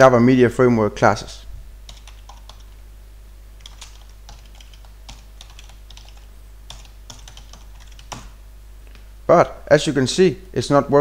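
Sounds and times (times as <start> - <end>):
typing on computer keyboard: 1.9 - 2.7, 3.6 - 8.4.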